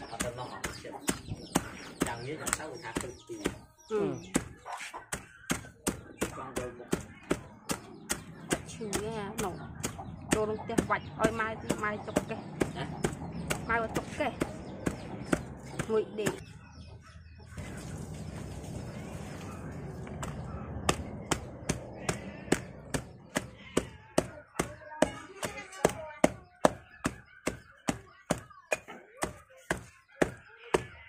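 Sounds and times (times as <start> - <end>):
pestle pounding in stone mortar: 0.1 - 3.7, 4.3 - 16.4, 20.2 - 30.9.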